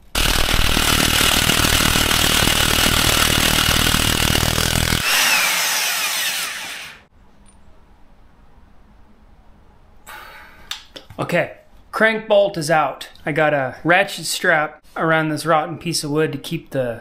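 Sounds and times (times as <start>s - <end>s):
bolt spinning out whir: 0.0s - 7.0s
impact wrench hammering: 0.0s - 7.0s.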